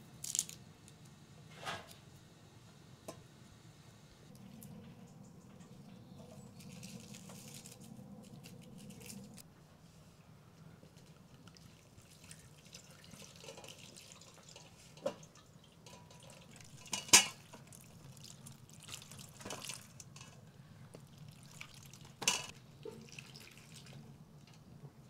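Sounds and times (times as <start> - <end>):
water trickling and dripping: 11.4 - 20.1, 21.0 - 24.6.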